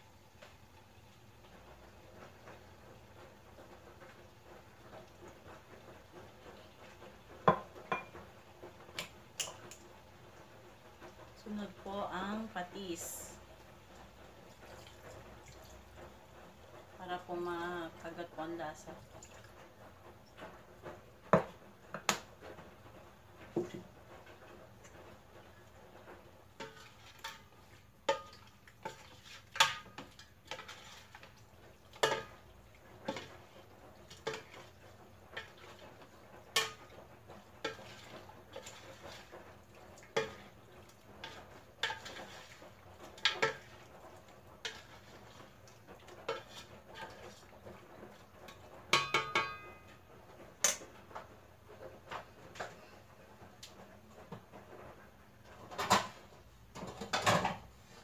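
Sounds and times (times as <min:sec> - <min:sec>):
spoon knocking on metal pot: 0:07.5 - 0:08.1, 0:48.9 - 0:49.8.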